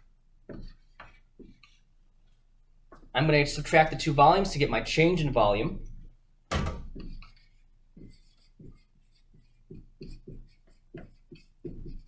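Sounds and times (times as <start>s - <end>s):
marker strokes on whiteboard: 0.0s - 3.1s, 6.9s - 12.0s.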